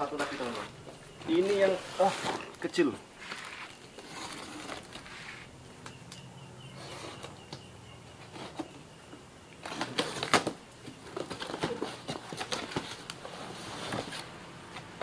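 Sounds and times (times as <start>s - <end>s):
rustling and light knocks: 9.6s - 15.0s.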